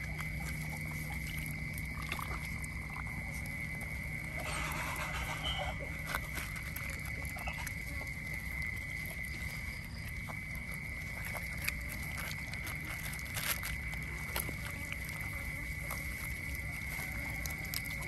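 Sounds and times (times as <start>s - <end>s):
otters chewing fish: 0.0s - 18.0s
high-pitched whine: 4.2s - 6.2s.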